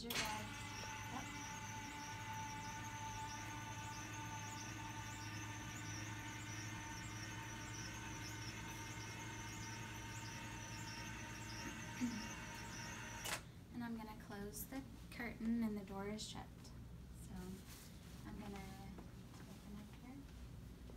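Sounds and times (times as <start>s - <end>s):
bed lift motor whine: 0.0s - 13.4s.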